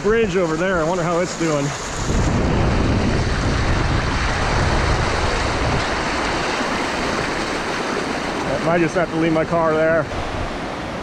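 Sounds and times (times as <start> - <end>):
floodwater rushing: 0.0 - 11.0
heavy low rumble: 1.9 - 7.3.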